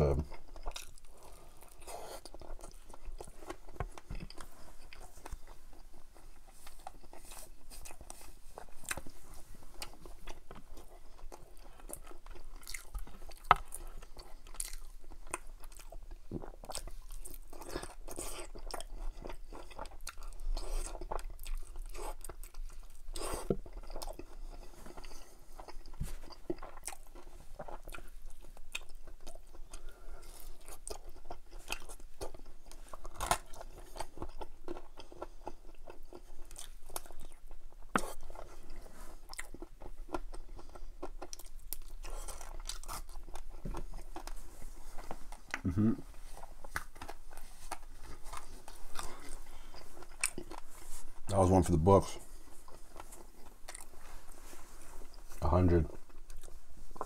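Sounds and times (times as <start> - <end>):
chewing and crunching fried chicken: 0.0 - 57.0.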